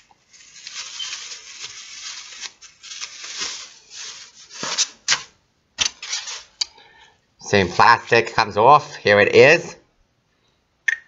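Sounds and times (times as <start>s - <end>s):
plastic bag rustling: 0.0s - 6.6s.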